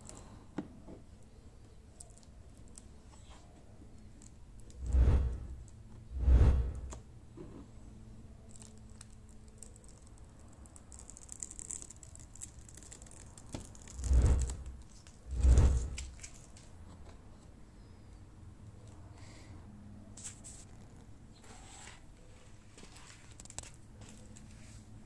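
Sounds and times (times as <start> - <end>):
tape peeling rustle: 8.4 - 16.7, 22.7 - 24.8.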